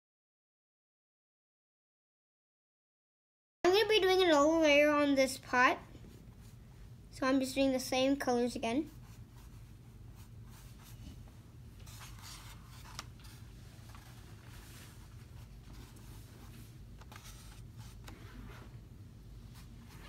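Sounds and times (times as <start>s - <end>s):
low steady hum: 3.7s - 20.0s
paintbrush swishing on canvas: 10.2s - 18.8s.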